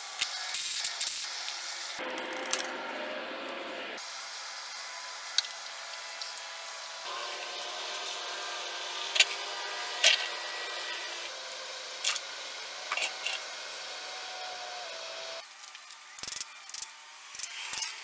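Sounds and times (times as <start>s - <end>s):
ratchet wrench clicking: 0.2s - 1.6s, 16.2s - 18.0s
hand tool sounds: 7.2s - 12.2s.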